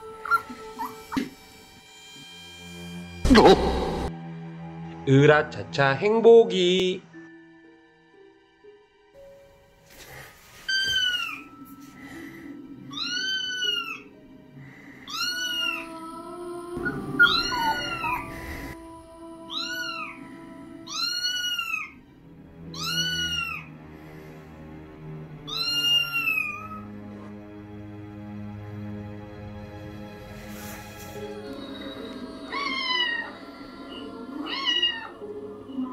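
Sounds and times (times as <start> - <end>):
eerie background music: 0.0 - 35.9
cat meows from a speaker: 22.7 - 23.6.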